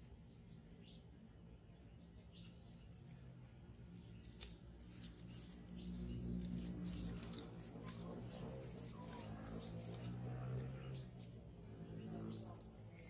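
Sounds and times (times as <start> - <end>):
leaves and twigs rustling: 3.7 - 11.7.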